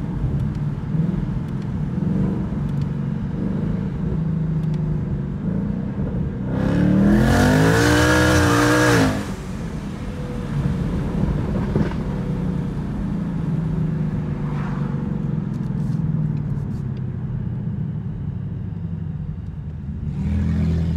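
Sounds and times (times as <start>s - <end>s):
car engine accelerating: 0.0s - 16.8s.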